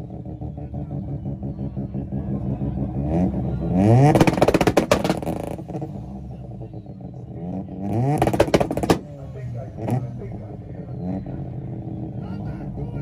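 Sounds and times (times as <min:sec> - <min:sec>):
car engine idling and revving: 0:00.0 - 0:13.0
exhaust pops and bangs: 0:03.3 - 0:06.7, 0:07.8 - 0:09.1.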